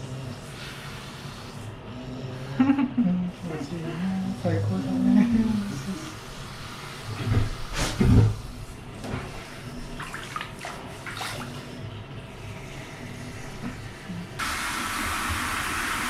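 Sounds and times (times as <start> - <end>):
water sloshing in a bathtub: 3.4 - 16.0.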